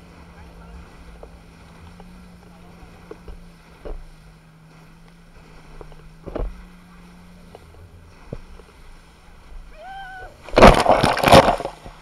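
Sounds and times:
low engine hum: 0.0s - 12.0s
water splashing: 0.0s - 12.0s
wind: 0.0s - 12.0s
person shouting: 9.7s - 10.4s.

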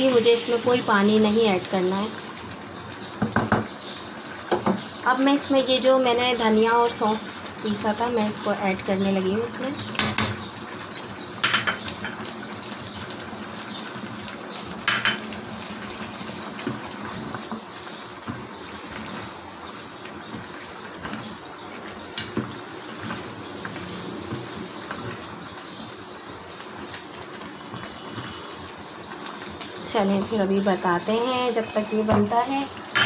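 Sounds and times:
food simmering: 0.0s - 33.0s.

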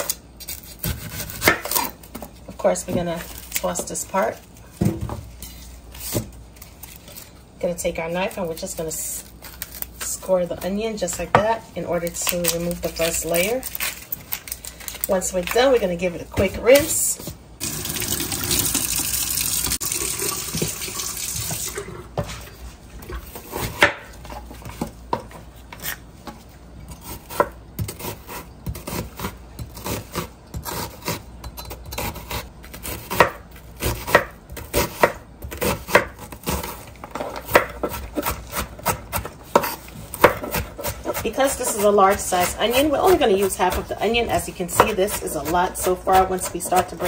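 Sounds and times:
tap running water into sink: 17.6s - 21.9s
knife chopping on wooden board: 23.4s - 24.1s, 31.9s - 36.8s, 37.4s - 47.0s.

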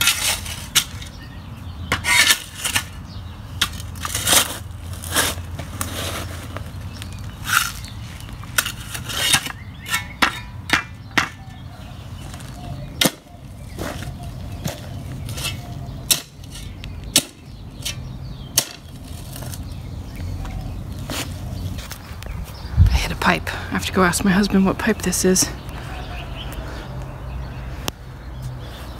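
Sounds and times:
shovel scraping rocky soil: 0.0s - 1.2s, 1.9s - 3.0s, 3.6s - 6.8s, 7.4s - 10.5s, 12.3s - 18.0s, 18.6s - 19.7s.

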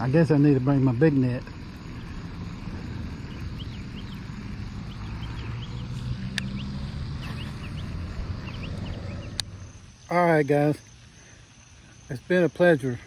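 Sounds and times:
low rumble with faint hum: 0.0s - 10.1s.

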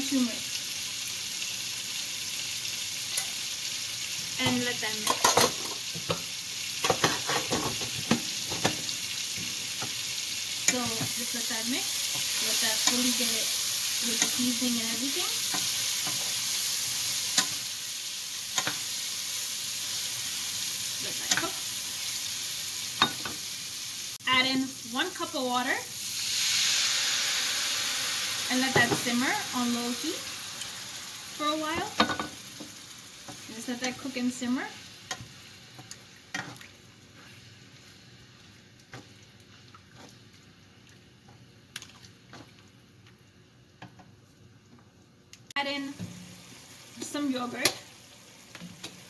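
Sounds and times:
chicken sizzling in a pan: 0.0s - 41.4s, 45.5s - 49.0s
spatula knocking and scraping pan: 6.8s - 8.8s.

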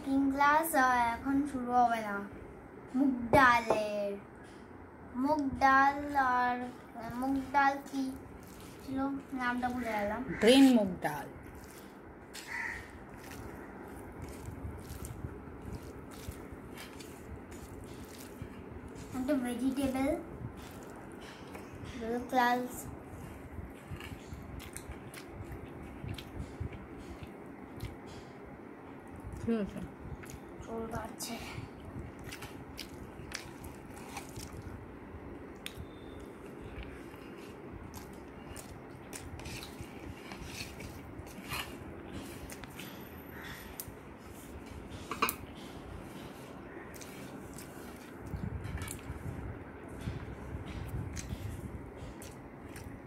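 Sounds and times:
person chewing food: 8.2s - 10.2s, 11.4s - 19.2s, 20.5s - 21.9s, 23.2s - 29.4s, 30.1s - 30.6s, 31.8s - 53.0s.

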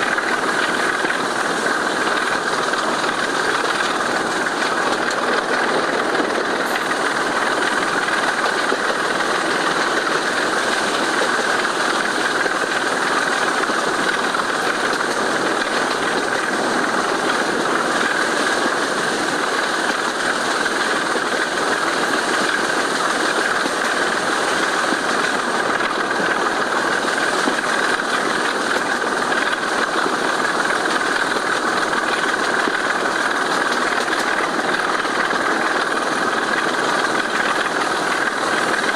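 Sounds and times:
diesel locomotive engine at full power: 0.0s - 38.9s.

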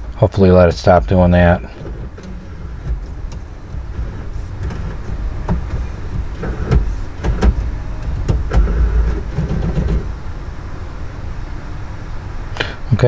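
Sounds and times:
low rumble: 0.8s - 12.5s
irregular mechanical clicks and knocks: 1.6s - 10.2s
cd changer motor whirring: 1.8s - 10.4s.

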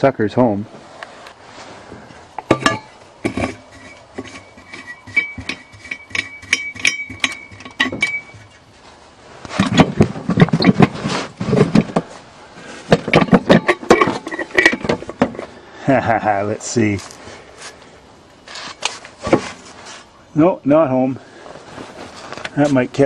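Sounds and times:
rustling and scraping: 0.7s - 15.6s, 16.6s - 20.2s, 21.2s - 23.0s
metal parts clinking: 2.5s - 8.5s, 13.0s - 15.2s
thin squeak: 3.4s - 8.6s, 10.4s - 10.8s.

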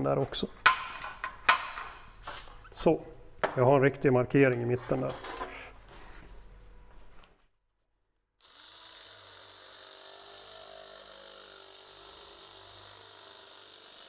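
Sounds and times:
electric metal shear whining: 8.4s - 14.0s.

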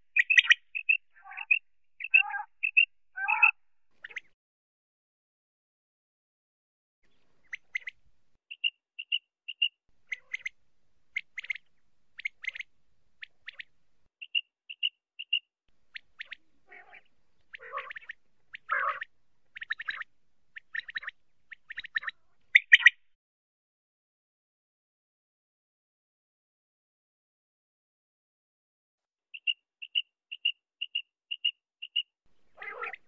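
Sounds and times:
harsh raspy bird calls: 0.0s - 4.3s, 7.5s - 10.5s, 15.9s - 23.0s, 29.4s - 33.0s
quail calling: 0.0s - 4.3s, 7.4s - 10.6s, 11.2s - 11.6s, 12.2s - 12.7s, 15.9s - 23.0s, 29.4s - 33.0s.

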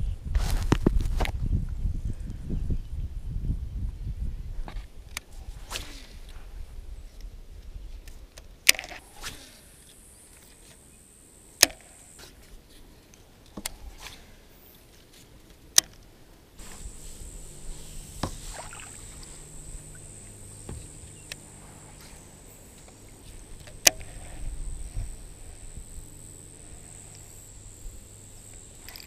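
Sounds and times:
high insect drone: 8.9s - 14.7s, 16.6s - 29.0s
water movement: 16.6s - 29.0s.

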